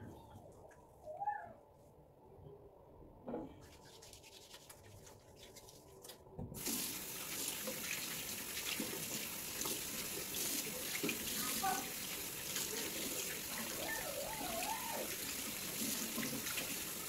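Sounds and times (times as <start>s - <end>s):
hands rubbing together: 3.6s - 6.2s
water running into sink: 6.5s - 17.0s.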